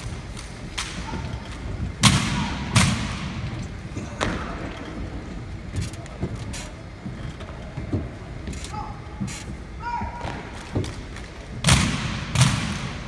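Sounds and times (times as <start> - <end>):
rifles slapped and struck: 10.6 - 12.9.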